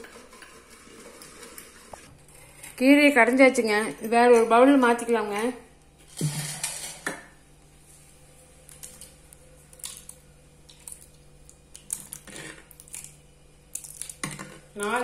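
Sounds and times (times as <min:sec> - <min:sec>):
ladle scraping clay pot: 0:00.0 - 0:03.2.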